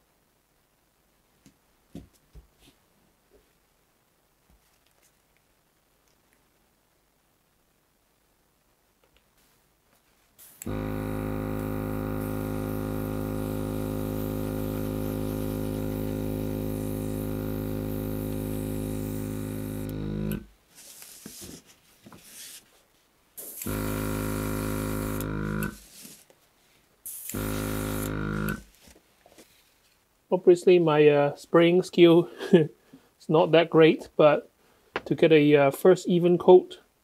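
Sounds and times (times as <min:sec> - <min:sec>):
airbrush air hissing: 0:10.4 - 0:20.5, 0:23.4 - 0:26.2, 0:27.0 - 0:28.8
compressor motor humming: 0:10.4 - 0:20.5, 0:23.4 - 0:25.9, 0:27.1 - 0:28.7.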